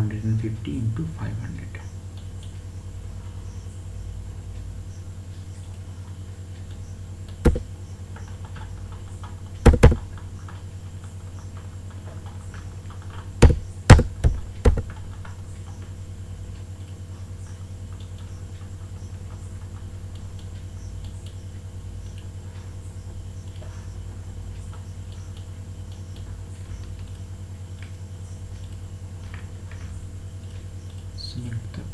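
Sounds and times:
low electrical hum: 0.0s - 31.9s
computer mouse clicking: 6.6s - 10.2s, 12.9s - 15.8s.

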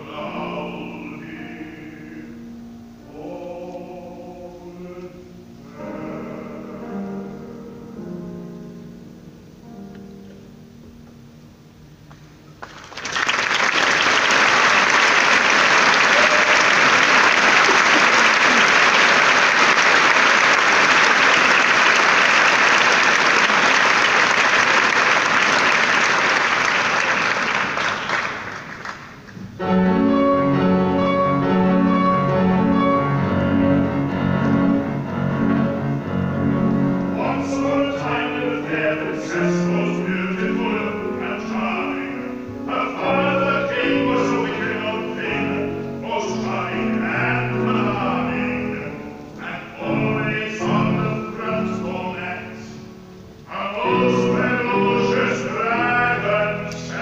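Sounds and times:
man singing: 0.0s - 7.9s, 37.1s - 52.9s, 53.5s - 57.0s
grand piano playing: 0.0s - 57.0s
audience applauding: 12.6s - 29.4s.

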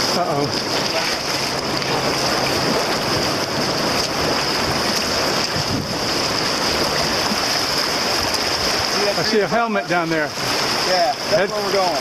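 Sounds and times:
wind buffeting microphone: 0.0s - 9.5s
paddle strokes splashing: 0.0s - 12.0s
river rapids rushing: 0.0s - 12.0s.

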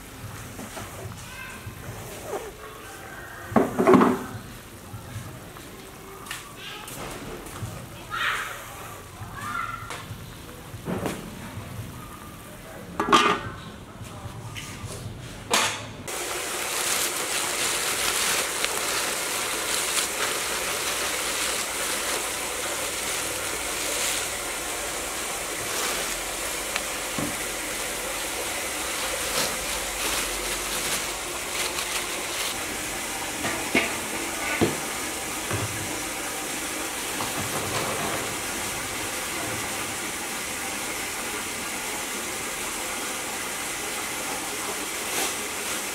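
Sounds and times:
kitchen things clattering: 13.0s - 13.6s, 33.3s - 36.0s, 37.2s - 38.4s
rushing water: 16.1s - 45.9s
metal pot lid clanking: 33.4s - 34.6s.

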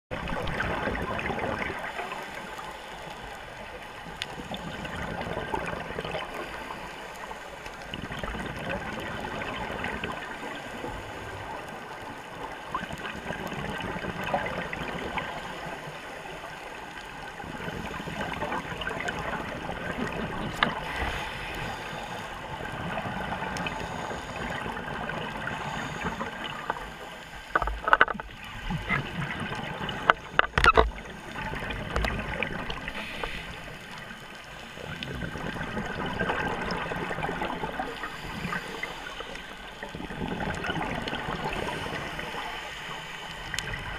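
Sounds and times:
exhaled bubbles underwater: 0.1s - 43.9s
scuba regulator breathing: 20.5s - 22.8s, 23.5s - 27.6s, 32.8s - 34.9s, 37.7s - 39.8s, 41.3s - 43.9s.

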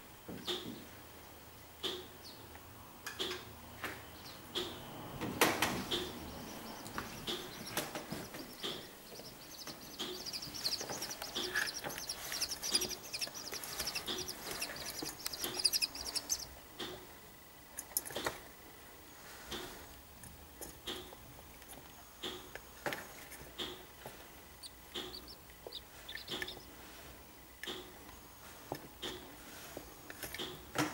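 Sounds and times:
chicks peeping: 4.1s - 17.2s, 23.2s - 28.0s.

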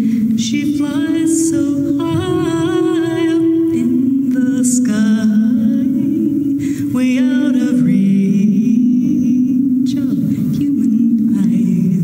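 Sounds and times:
person singing with vibrato: 0.0s - 12.0s
sustained low accompaniment: 0.0s - 12.0s.

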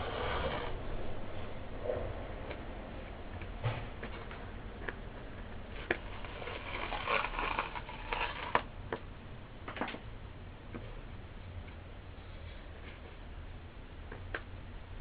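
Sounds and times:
metal tool scraping speaker cone: 0.0s - 1.5s, 3.3s - 8.7s.

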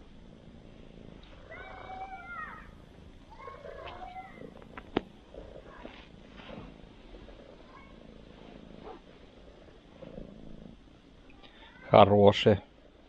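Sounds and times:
wavering animal cries: 1.4s - 4.6s.

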